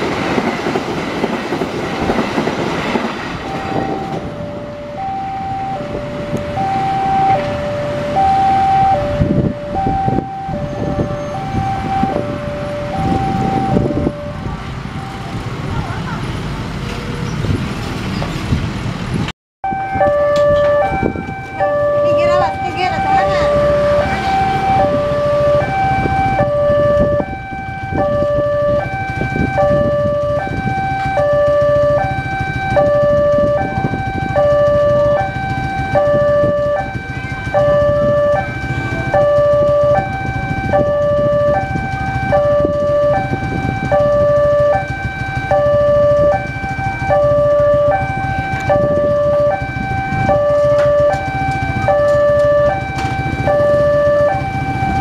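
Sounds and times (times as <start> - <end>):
two-tone crossing alarm: 2.9 - 15.6, 19.6 - 55.0
motorcycles idling: 20.4 - 55.0.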